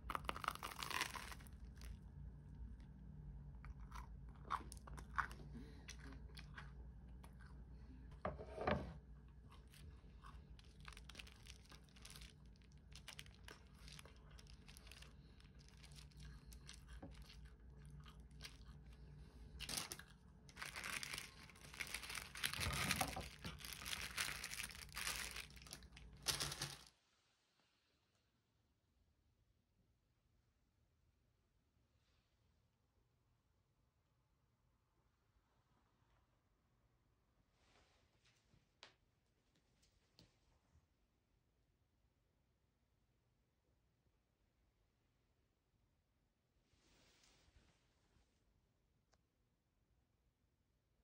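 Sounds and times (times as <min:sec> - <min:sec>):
waffle crunching while chewed: 0:00.0 - 0:02.1, 0:03.6 - 0:07.8, 0:09.2 - 0:26.8
paper crinkling: 0:10.4 - 0:18.8, 0:19.6 - 0:26.9.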